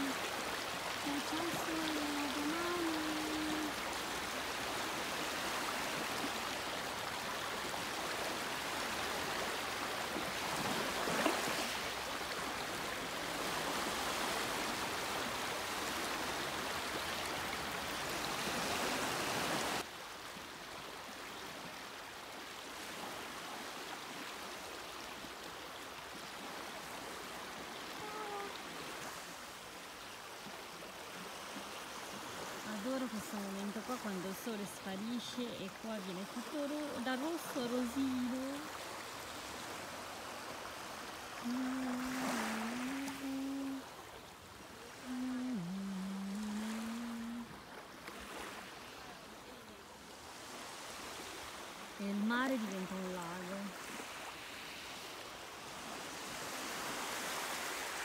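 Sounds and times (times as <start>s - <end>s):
small waves lapping on pebbles: 0.0s - 58.0s
waves washing over rocks: 41.2s - 43.9s.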